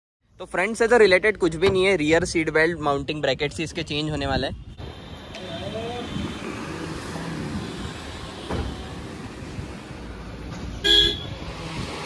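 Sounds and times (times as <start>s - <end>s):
car horn toot: 10.8s - 11.4s.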